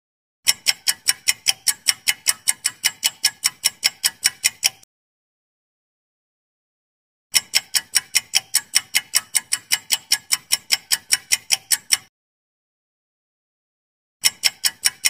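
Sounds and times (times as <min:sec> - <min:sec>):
fast clock ticking: 0:00.4 - 0:04.9, 0:07.3 - 0:12.1, 0:14.2 - 0:15.0.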